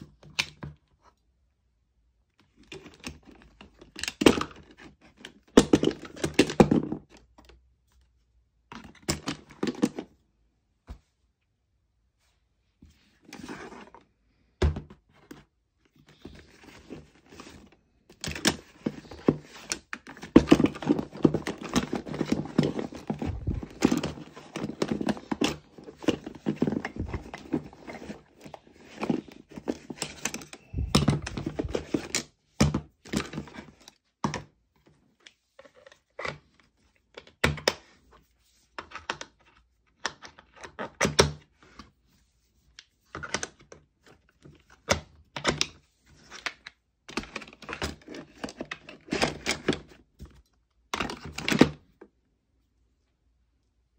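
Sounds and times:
fabric tool bag rustling: 21.6s - 28.2s.

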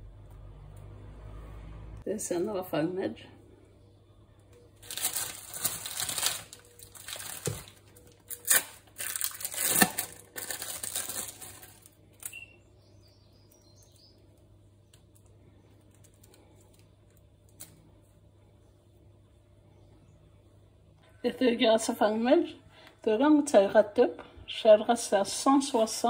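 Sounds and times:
plastic wrapper crinkling and tearing: 4.8s - 12.4s, 15.8s - 17.8s.

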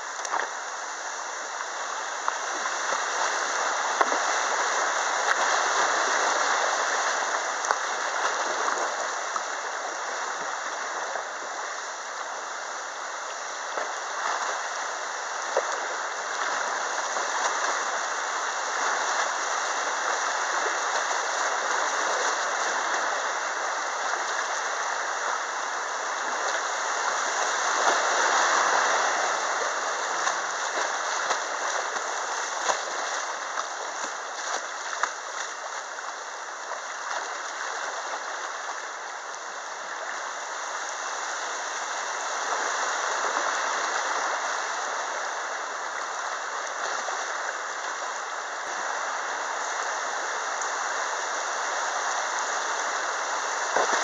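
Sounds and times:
river rushing and splashing: 0.0s - 54.0s
sharp water splashes: 13.6s - 39.3s, 53.4s - 54.0s.

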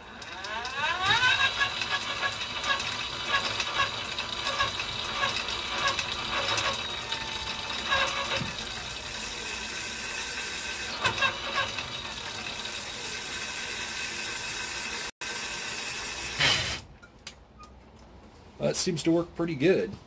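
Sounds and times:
electric motor whine: 0.0s - 2.7s, 6.0s - 11.1s.

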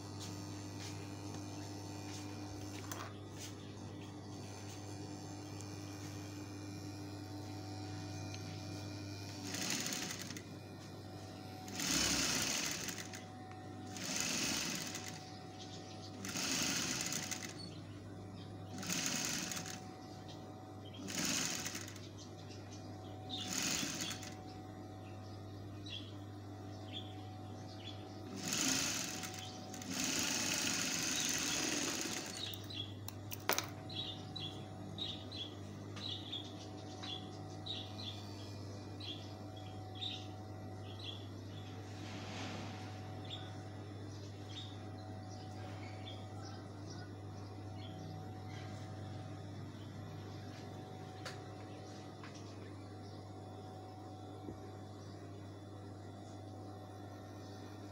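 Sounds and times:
motor hum: 0.0s - 57.9s
sewing machine stitching: 9.3s - 10.4s, 11.7s - 13.3s, 13.9s - 15.2s, 16.2s - 17.7s, 18.7s - 19.8s, 20.9s - 22.1s, 23.3s - 24.4s, 28.3s - 34.1s.

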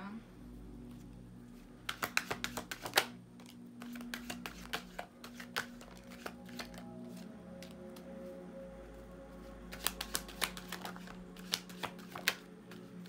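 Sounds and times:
faint background music: 0.0s - 13.0s
cards being shuffled: 1.8s - 8.2s, 9.7s - 13.0s
card being drawn: 1.9s - 7.8s.

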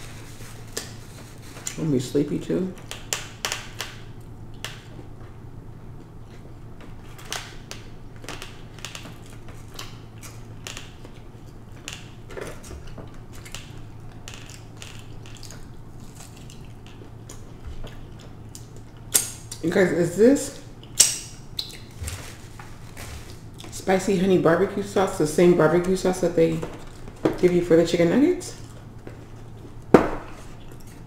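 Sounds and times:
low steady hum: 0.0s - 31.0s
wet chewing clicks: 12.8s - 19.6s, 20.8s - 22.1s.

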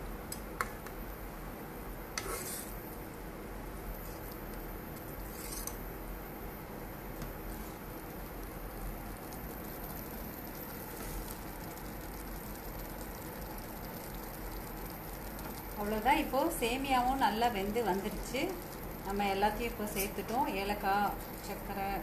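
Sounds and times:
syrup bubbling in a pan: 6.7s - 22.0s.

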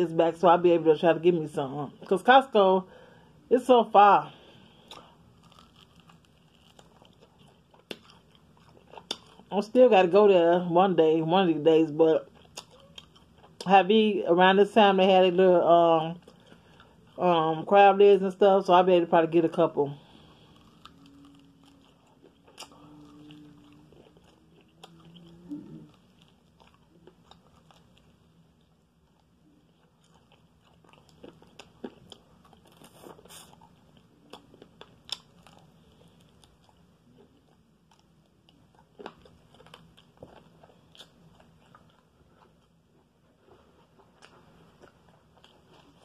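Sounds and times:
faint low hum: 0.0s - 46.0s
chewing crunchy food: 4.6s - 9.7s, 12.2s - 13.7s, 16.1s - 17.2s, 19.9s - 46.0s.

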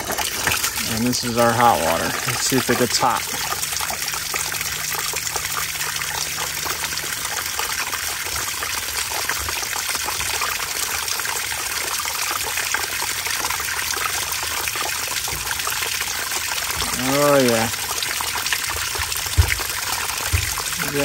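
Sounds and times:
water running from faucet: 0.0s - 21.0s
water splashing on ground: 16.6s - 21.0s.

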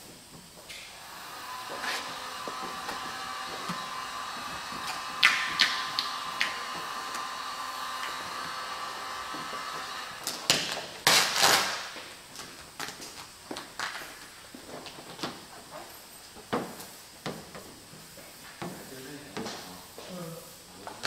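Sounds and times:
heat gun blowing: 0.7s - 12.0s.

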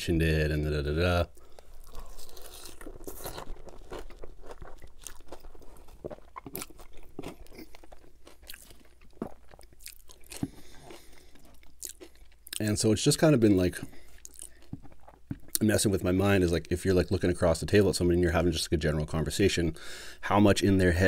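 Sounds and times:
wet chewing: 1.3s - 15.6s.

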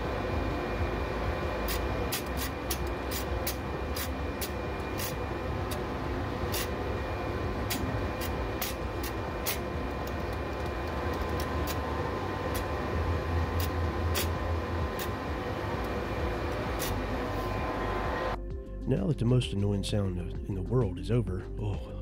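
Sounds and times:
thickness planer whining: 0.0s - 18.4s.

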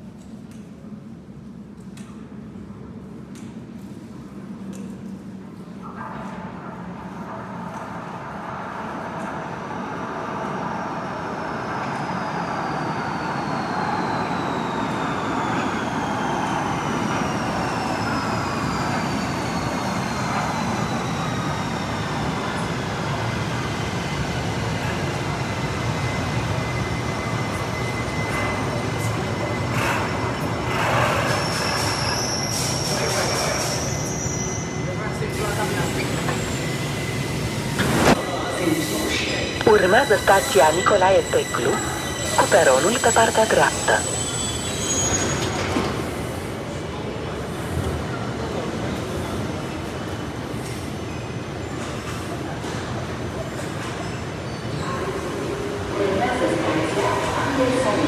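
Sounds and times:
metro train rumble: 0.0s - 58.0s
short high squeal: 29.8s - 34.9s, 43.9s - 45.8s.

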